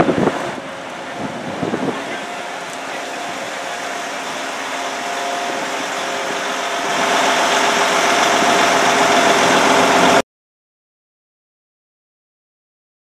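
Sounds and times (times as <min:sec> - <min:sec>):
diesel train engines idling: 0:00.0 - 0:10.2
held whine: 0:00.0 - 0:10.2.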